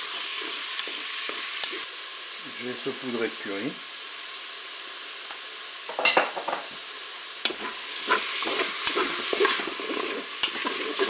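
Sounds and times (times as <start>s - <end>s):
chicken sizzling in hot oil: 0.0s - 11.0s
wooden spatula scraping bowl: 7.5s - 11.0s.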